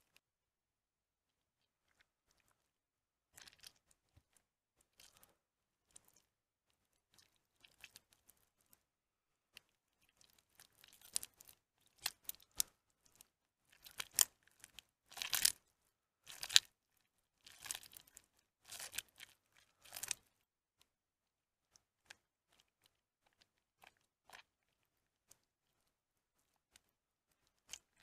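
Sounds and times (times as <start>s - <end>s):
wet soap crunching by hand: 3.3s - 6.3s, 9.6s - 15.6s, 16.2s - 16.7s, 17.4s - 20.3s.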